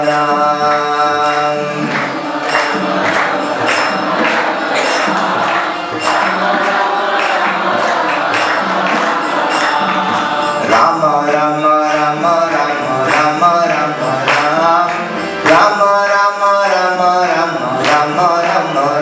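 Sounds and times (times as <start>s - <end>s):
man singing a devotional chant: 0.0s - 5.0s, 10.4s - 19.0s
tabla playing: 0.0s - 19.0s.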